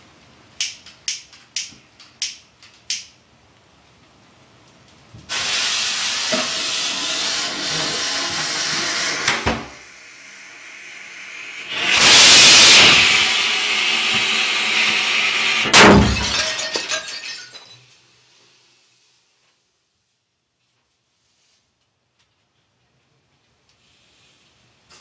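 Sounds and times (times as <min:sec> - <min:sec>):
firework fuse hissing: 0:05.3 - 0:15.8.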